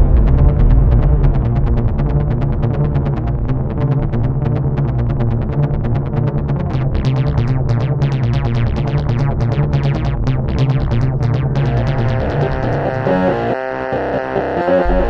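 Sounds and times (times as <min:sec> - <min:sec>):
held bass note: 0:00.0 - 0:15.0
electronic synthesizer music: 0:06.5 - 0:15.0.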